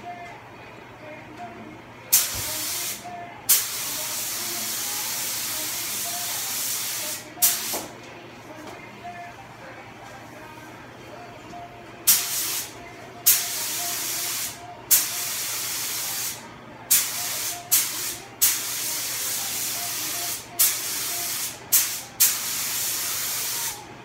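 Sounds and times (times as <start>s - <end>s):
paint spray gun hissing: 2.2s - 7.8s.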